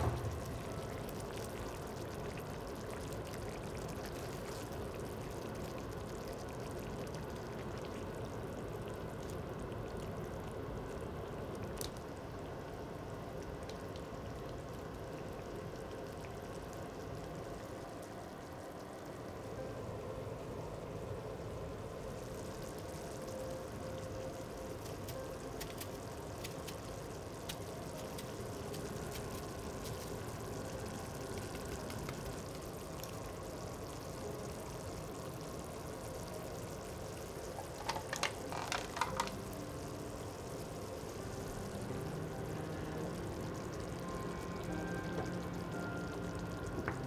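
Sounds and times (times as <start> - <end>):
sauce simmering in frying pan: 0.0 - 47.0.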